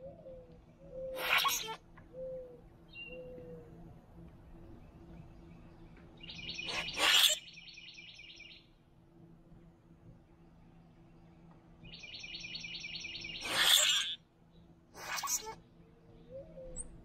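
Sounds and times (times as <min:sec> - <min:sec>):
grackle harsh rasping call: 0:01.1 - 0:01.8, 0:06.6 - 0:07.6, 0:13.2 - 0:14.2, 0:15.0 - 0:15.6
grackles calling: 0:01.1 - 0:01.8, 0:06.5 - 0:07.6, 0:12.7 - 0:14.2, 0:15.0 - 0:15.6.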